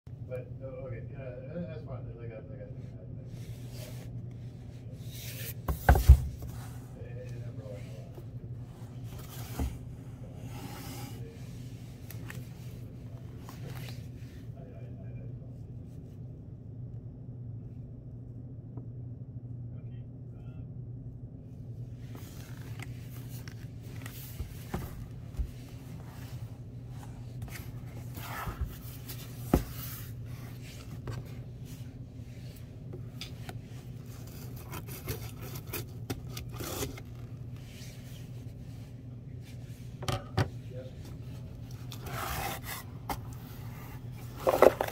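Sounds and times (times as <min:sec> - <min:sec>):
steady low hum: 0:00.1 - 0:44.9
cardboard rubbing and scraping: 0:05.0 - 0:06.9, 0:08.0 - 0:14.2, 0:22.1 - 0:32.7, 0:33.3 - 0:38.6, 0:41.2 - 0:44.9
box knocking against desk: 0:05.7 - 0:06.4.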